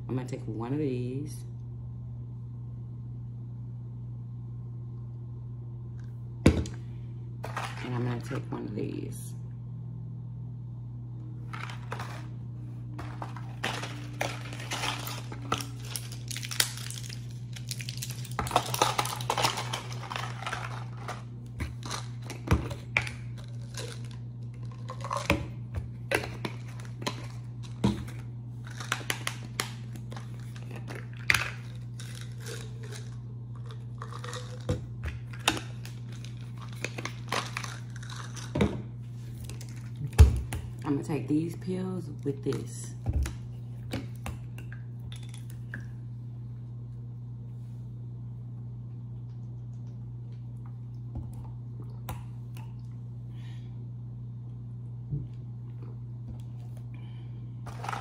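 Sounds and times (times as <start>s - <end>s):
low hum: 0.0s - 58.0s
packaging crinkling and rustling: 13.0s - 22.4s.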